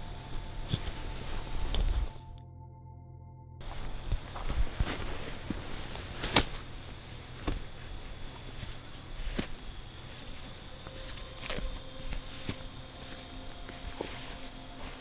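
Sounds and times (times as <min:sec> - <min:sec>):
crickets chirring: 0:00.0 - 0:02.4, 0:03.6 - 0:15.0
footsteps on dry grass: 0:03.6 - 0:15.0
tent bag rustling: 0:03.6 - 0:15.0.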